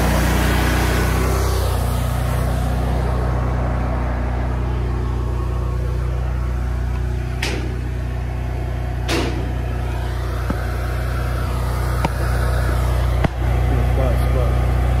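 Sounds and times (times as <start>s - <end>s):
engine idling: 0.0s - 15.0s
sharp knocks: 7.3s - 8.0s, 9.1s - 9.7s.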